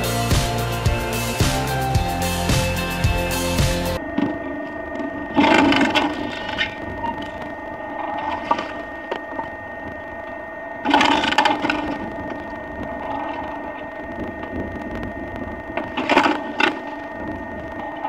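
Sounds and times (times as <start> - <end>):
log splitter mechanical hum: 0.0 - 18.0.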